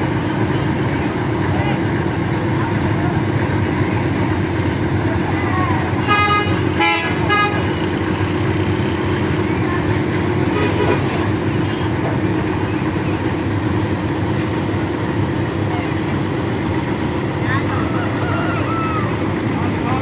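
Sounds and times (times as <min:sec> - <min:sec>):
diesel engine running: 0:00.0 - 0:20.0
vehicle horn tooting: 0:06.0 - 0:08.0, 0:10.5 - 0:11.1.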